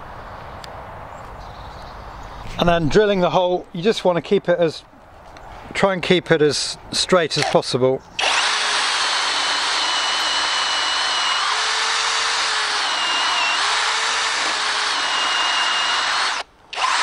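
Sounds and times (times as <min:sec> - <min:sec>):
cordless drill boring into wood: 0:08.2 - 0:17.0.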